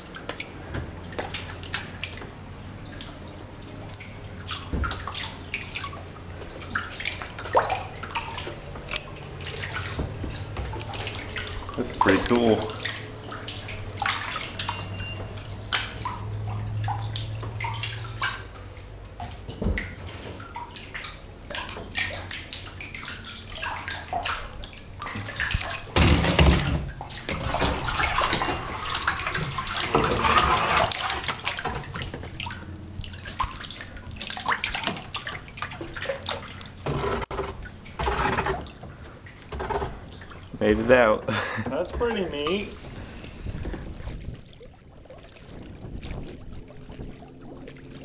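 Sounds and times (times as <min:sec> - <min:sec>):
water drips: 0:00.0 - 0:38.0, 0:38.6 - 0:48.0
water splashing against rock: 0:03.9 - 0:40.6
kayak paddle strokes: 0:04.3 - 0:48.0.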